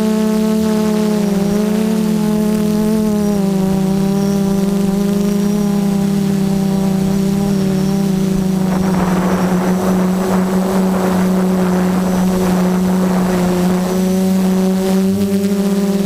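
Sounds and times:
quadcopter motors humming: 0:00.0 - 0:16.0
rushing noise: 0:08.1 - 0:15.0.

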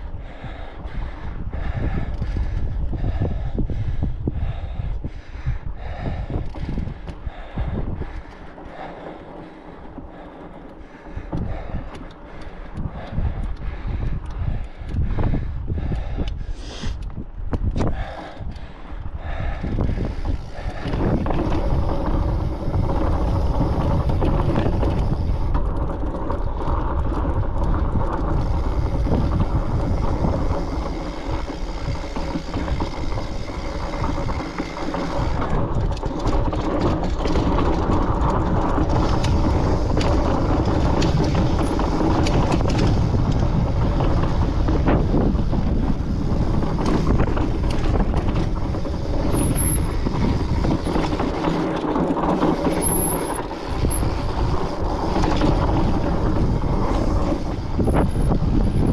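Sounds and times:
fat bike tyres rolling on rock: 0:00.0 - 0:58.9
wind rushing over microphone: 0:00.0 - 0:58.9
bike knocks and rattles: 0:00.2 - 0:16.5, 0:17.1 - 0:58.9.

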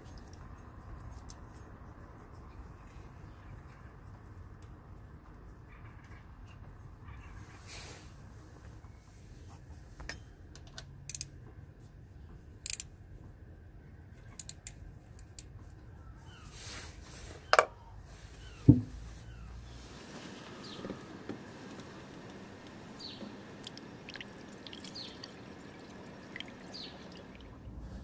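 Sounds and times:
socket wrench clicks and taps: 0:10.6 - 0:11.3, 0:12.7 - 0:12.9, 0:14.4 - 0:15.5
knock with low thud: 0:18.7 - 0:19.0.

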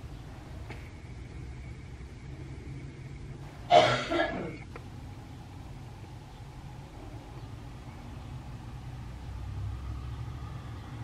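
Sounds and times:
person coughing: 0:03.7 - 0:04.6.

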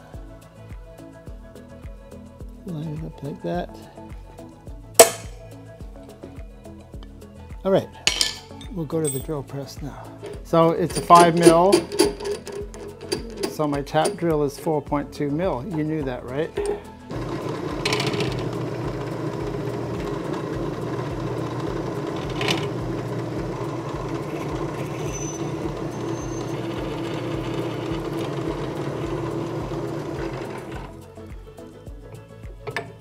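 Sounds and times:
drill press motor hum: 0:17.1 - 0:30.9.

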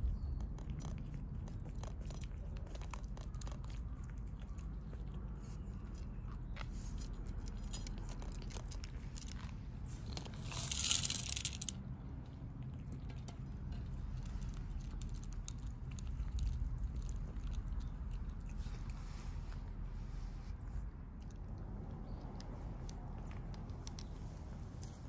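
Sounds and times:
cats crunching dry food: 0:00.0 - 0:19.7
steady low rumble: 0:00.0 - 0:25.0.

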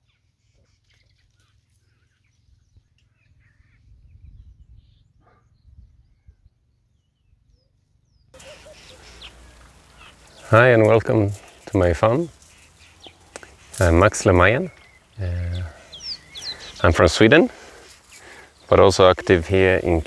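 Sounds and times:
bird chirps and calls: 0:00.1 - 0:20.0.

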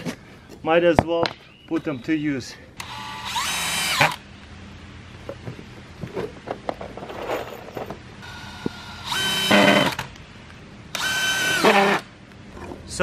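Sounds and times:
cordless drill driving screws: 0:02.8 - 0:04.2, 0:08.2 - 0:10.1, 0:10.9 - 0:12.1.

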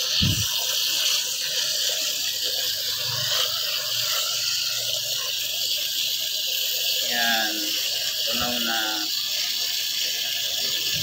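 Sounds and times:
hose spray hissing into bucket: 0:00.0 - 0:11.0.

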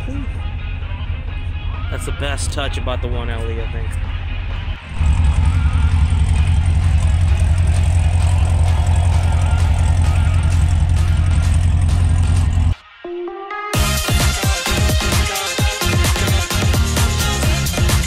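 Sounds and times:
car engine idling rumble: 0:00.0 - 0:12.8.

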